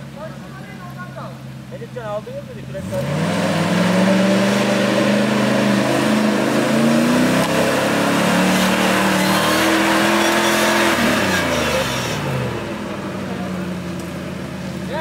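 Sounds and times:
engine revving hard: 2.7 - 12.9.

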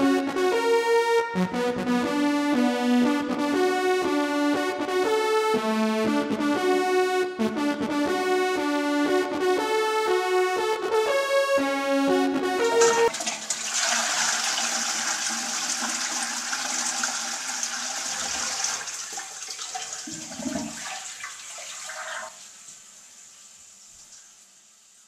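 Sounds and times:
toilet flushing: 12.6 - 23.4.

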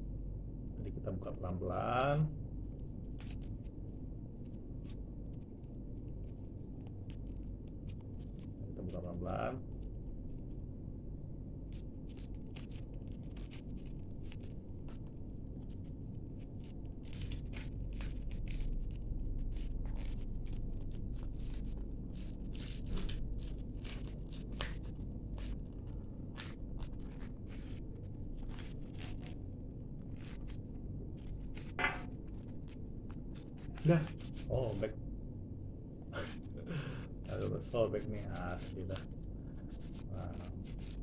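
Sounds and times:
low background hum: 0.0 - 41.0
paper crinkling and rustling: 2.7 - 3.8, 4.4 - 10.6, 11.6 - 34.9.

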